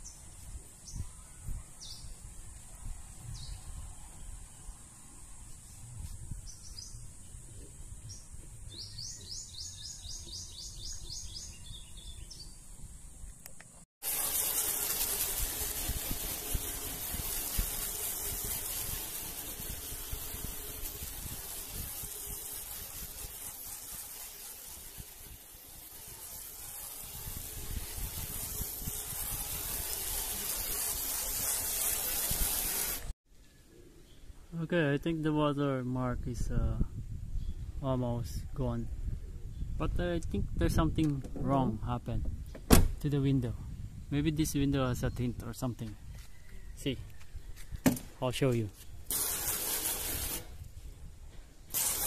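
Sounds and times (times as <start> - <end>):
steady rushing hiss: 0.0 - 33.2, 48.3 - 52.0
birds chirping: 5.6 - 13.3.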